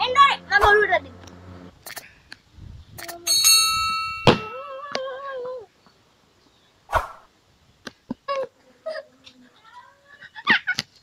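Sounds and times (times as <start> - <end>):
bell-like notification ding: 3.3 - 4.6.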